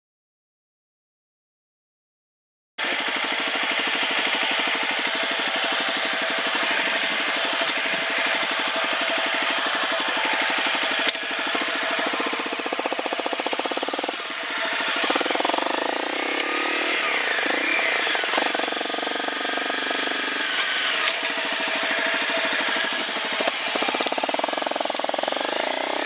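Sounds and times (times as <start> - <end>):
motorcycle engine revving: 2.8 - 26.0.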